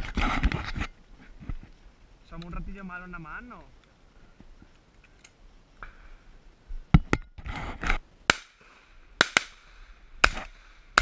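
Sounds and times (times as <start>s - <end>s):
shotgun shots: 8.3s - 11.0s.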